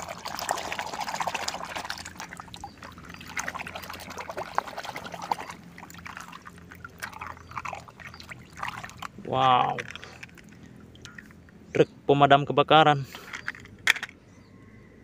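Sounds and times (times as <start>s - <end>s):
water trickling and dripping: 0.0s - 11.5s.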